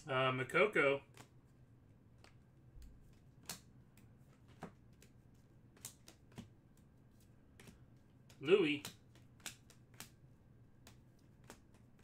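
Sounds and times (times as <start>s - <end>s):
trading cards flipping clicks: 1.1s - 1.4s, 2.2s - 6.9s, 7.5s - 10.2s, 10.8s - 12.0s.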